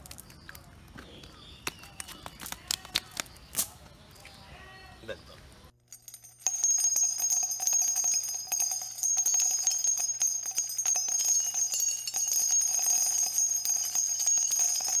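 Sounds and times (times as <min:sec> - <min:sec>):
small bells shaking: 0:05.9 - 0:15.0.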